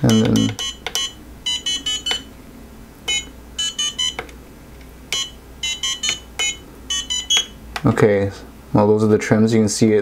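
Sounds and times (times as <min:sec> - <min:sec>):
short electronic beeps: 0:00.1 - 0:02.3, 0:03.1 - 0:04.2, 0:05.1 - 0:07.6.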